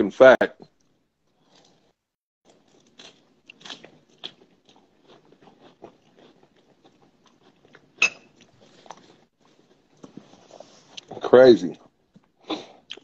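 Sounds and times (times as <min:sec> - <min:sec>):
close-up crunching and crackling: 0:02.5 - 0:11.3.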